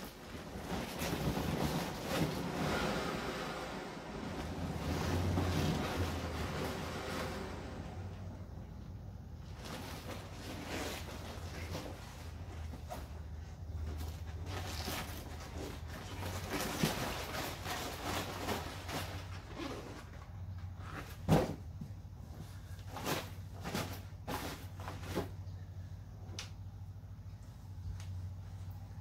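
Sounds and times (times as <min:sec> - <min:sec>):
vinyl rustling and crinkling: 0:00.0 - 0:02.9, 0:09.3 - 0:25.6.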